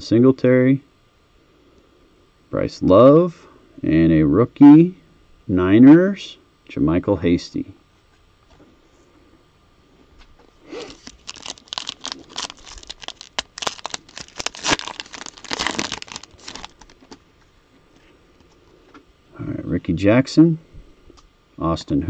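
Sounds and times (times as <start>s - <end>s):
card pack wrapper tearing: 10.7s - 17.2s.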